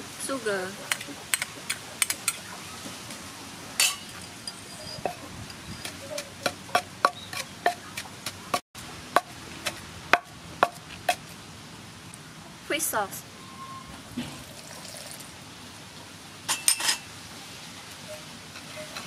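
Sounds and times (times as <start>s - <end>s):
pestle pounding in wooden mortar: 5.0s - 11.3s.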